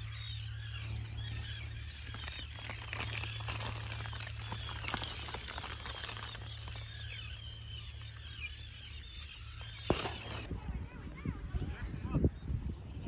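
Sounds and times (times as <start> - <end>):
birds chirping: 0.0 - 13.0
plastic tarp rustling: 1.9 - 7.6.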